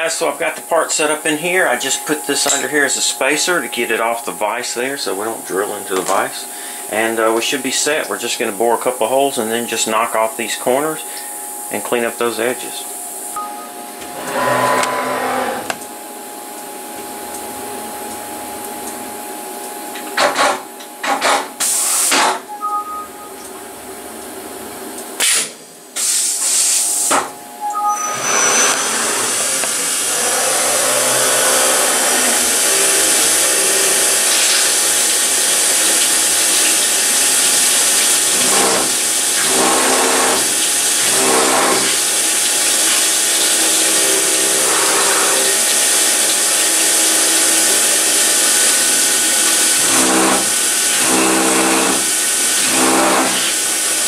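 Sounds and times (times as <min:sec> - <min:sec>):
cutter boring metal: 0:00.0 - 0:13.3, 0:14.1 - 0:15.8, 0:27.8 - 0:54.0
coolant spray hiss: 0:00.0 - 0:13.4, 0:21.5 - 0:22.3, 0:25.2 - 0:27.2, 0:28.5 - 0:54.0
milling spindle running: 0:28.0 - 0:54.0.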